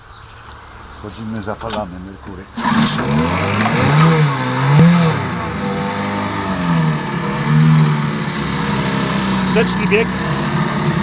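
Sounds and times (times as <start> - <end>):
propeller churning water: 2.5 - 11.0
two-stroke outboard motor running: 2.6 - 11.0.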